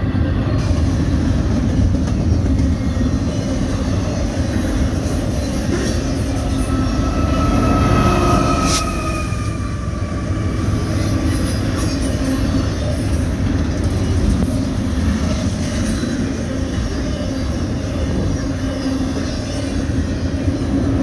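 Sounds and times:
train wheels on rail: 0.0s - 21.0s
wheel squeal: 3.1s - 13.1s.

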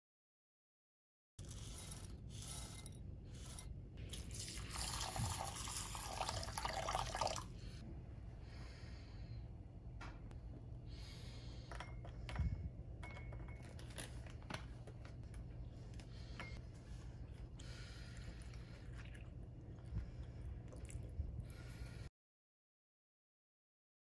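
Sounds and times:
water pouring into bowl: 4.1s - 7.5s.

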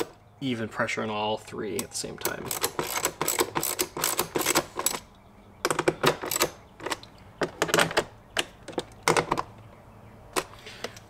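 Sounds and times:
hand ratchet clicking: 1.8s - 5.0s.

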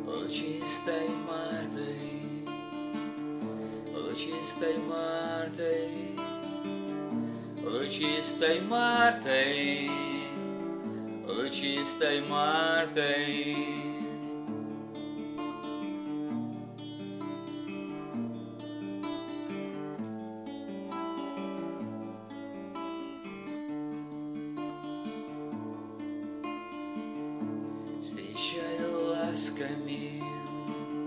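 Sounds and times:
acoustic guitar playing chords: 0.0s - 31.0s.

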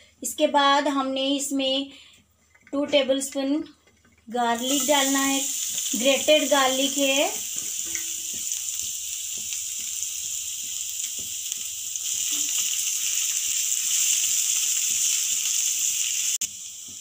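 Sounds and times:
spatula stirring in pan: 4.0s - 17.0s
garlic sizzling in oil: 4.3s - 17.0s.

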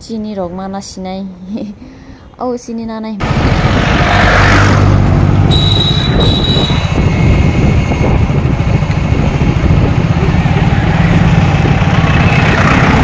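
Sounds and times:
road and wind noise: 0.0s - 13.0s
vehicle engine running: 5.0s - 13.0s
high thin squeal: 5.5s - 7.0s.

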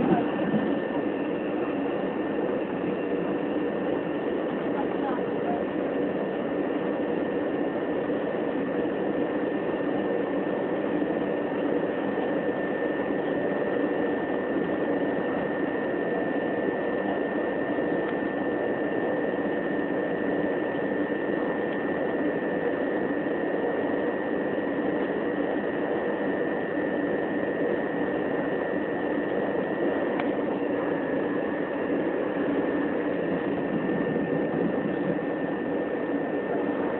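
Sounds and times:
wheels rumbling on rail: 0.0s - 0.8s.

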